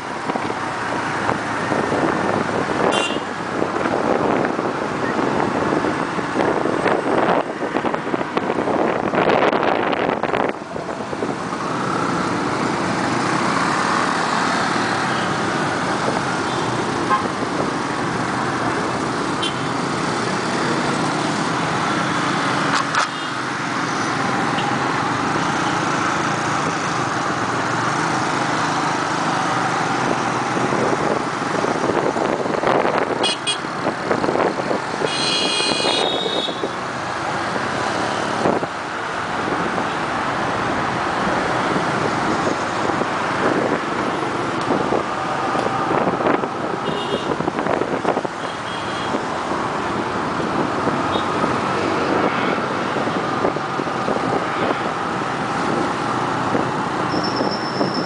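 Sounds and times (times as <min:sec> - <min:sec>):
traffic noise: 0:00.0 - 0:58.0
horn toot: 0:35.1 - 0:36.7.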